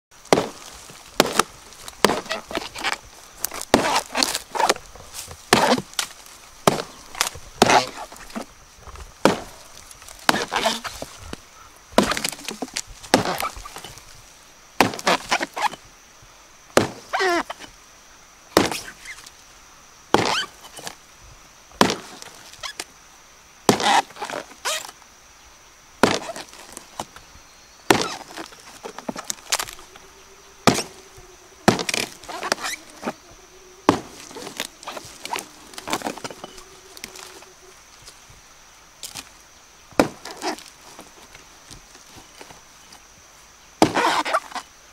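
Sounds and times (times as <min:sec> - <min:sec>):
wood splitting and splintering: 0:00.2 - 0:11.4, 0:12.0 - 0:14.0, 0:14.8 - 0:15.8, 0:16.8 - 0:17.7, 0:18.6 - 0:19.2, 0:20.1 - 0:21.0, 0:21.8 - 0:22.8, 0:23.7 - 0:24.9, 0:26.0 - 0:27.1, 0:27.9 - 0:29.9, 0:30.6 - 0:31.0, 0:31.6 - 0:33.1, 0:33.9 - 0:37.4, 0:39.9 - 0:41.4, 0:43.8 - 0:44.6
blade chopping into wood: 0:00.3 - 0:08.2, 0:09.2 - 0:09.6, 0:10.2 - 0:11.1, 0:12.0 - 0:14.0, 0:14.8 - 0:15.8, 0:16.8 - 0:17.2, 0:18.6 - 0:19.0, 0:20.1 - 0:20.9, 0:21.8 - 0:22.3, 0:23.7 - 0:24.9, 0:26.0 - 0:26.7, 0:27.9 - 0:29.8, 0:30.6 - 0:31.0, 0:31.7 - 0:33.1, 0:33.9 - 0:37.3, 0:39.9 - 0:40.6, 0:43.8 - 0:44.6.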